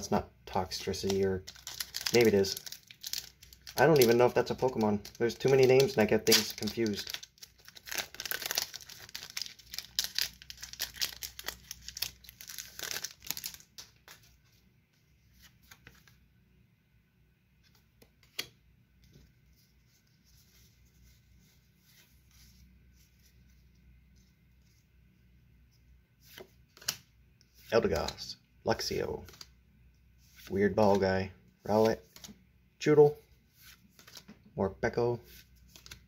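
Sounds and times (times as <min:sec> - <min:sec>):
handling trading cards: 0:00.6 - 0:14.6, 0:15.2 - 0:16.2, 0:25.7 - 0:29.6, 0:30.2 - 0:32.4, 0:33.6 - 0:34.5, 0:35.3 - 0:36.0
foil wrapper tearing and crinkling: 0:01.0 - 0:13.8.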